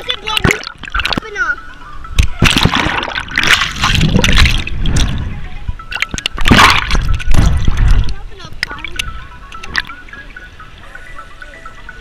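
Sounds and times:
pool water splashing: 0.0 - 5.2.

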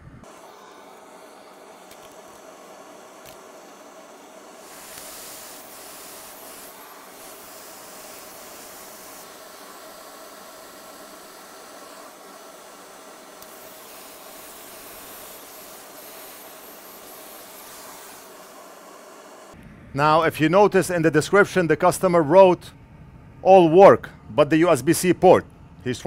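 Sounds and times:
hiss of moving air: 0.0 - 19.6
faint hum: 0.0 - 26.0.

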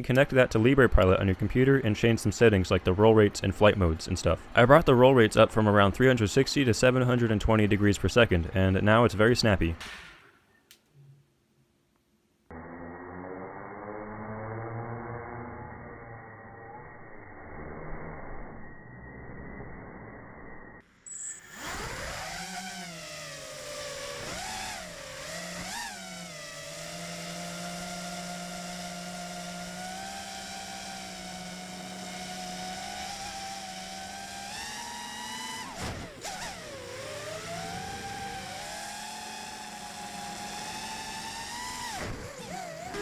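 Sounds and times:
drone motors whining: 12.5 - 43.0.

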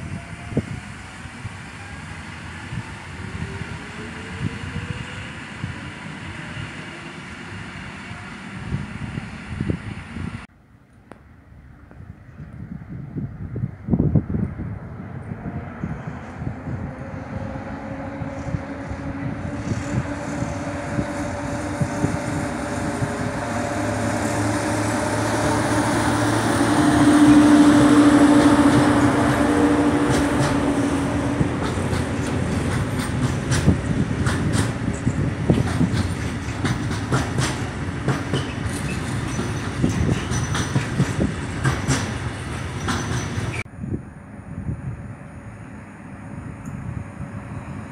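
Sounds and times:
freight train rolling past: 0.0 - 10.5, 11.4 - 47.9
locomotive hum: 0.0 - 47.9
wheels clicking over rail joints: 30.0 - 43.6.

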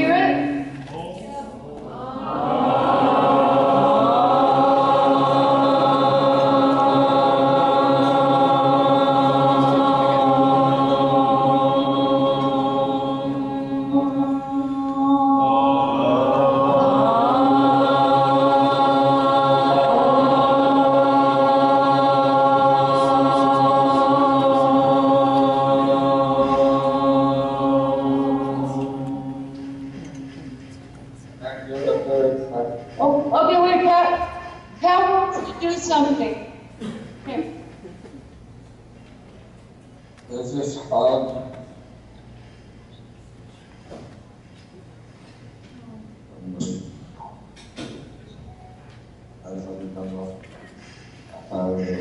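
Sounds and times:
voices chanting together: 1.5 - 32.8.

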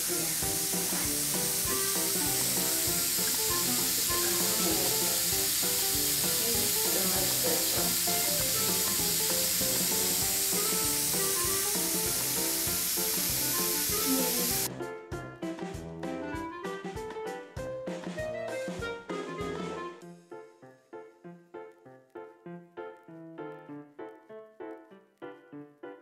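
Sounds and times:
misting system spraying hiss: 0.0 - 14.7
background music with beat: 0.8 - 20.3.

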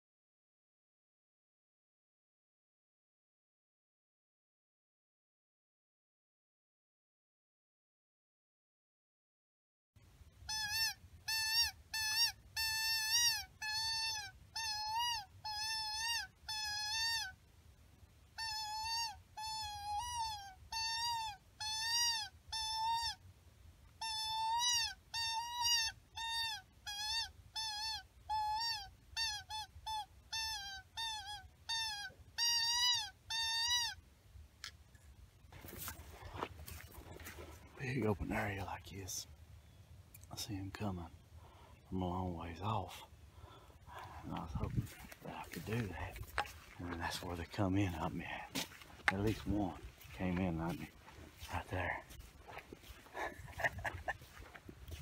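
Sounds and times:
coyote call whining yelps: 10.4 - 17.4, 18.4 - 23.2, 24.0 - 34.0, 43.5 - 55.0.

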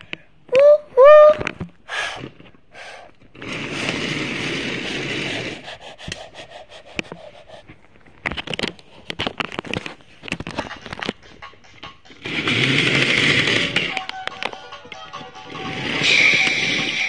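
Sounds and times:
handling scrapes rubs and clicks: 3.2 - 11.4.

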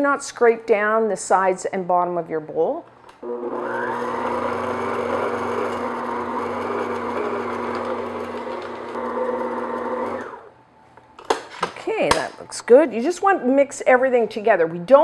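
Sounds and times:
stand mixer motor running: 3.2 - 10.5.

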